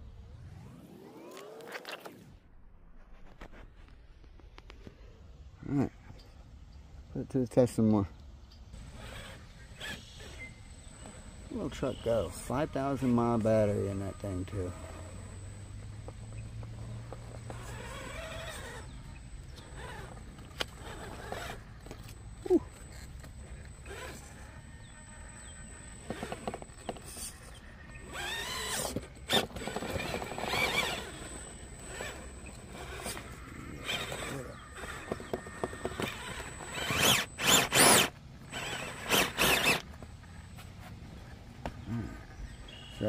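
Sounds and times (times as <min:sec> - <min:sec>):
electric motor whine: 0:08.8 - 0:40.7
tyres scraping and clicking on rock: 0:16.0 - 0:40.6.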